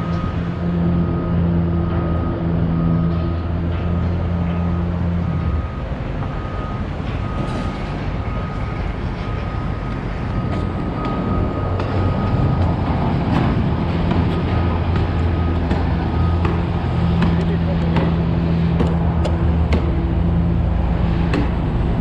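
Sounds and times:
reversing alarm beeping: 0.0s - 21.6s
heavy engine humming: 0.0s - 22.0s
knocks and clanks: 9.9s - 20.4s, 21.0s - 21.9s.

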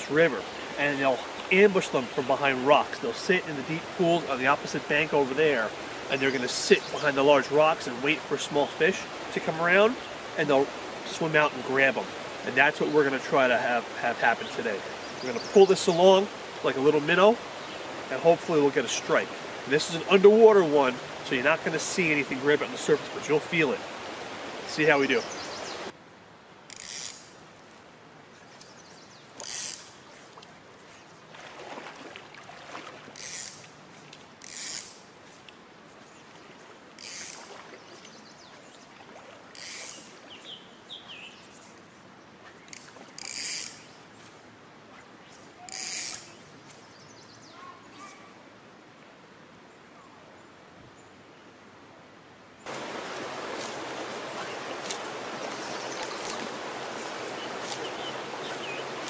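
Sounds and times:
river current rushing: 0.0s - 46.8s, 52.6s - 59.0s
fly line zipping off reel: 26.7s - 27.4s, 29.4s - 30.3s, 33.2s - 33.7s, 34.4s - 35.4s, 37.0s - 38.1s, 39.5s - 40.2s, 42.4s - 44.3s, 44.9s - 46.4s, 53.1s - 59.0s
bird chirping faintly: 53.6s - 59.0s.

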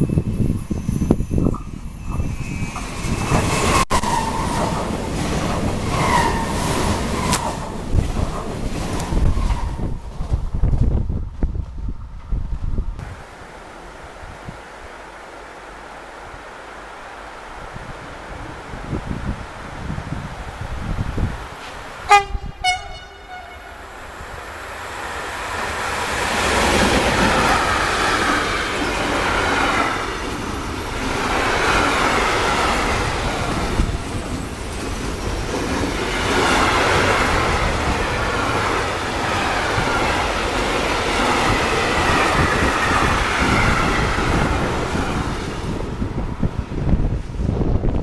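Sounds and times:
train wheel and rail noise: 0.0s - 48.0s
train horn blasts: 22.0s - 23.9s.

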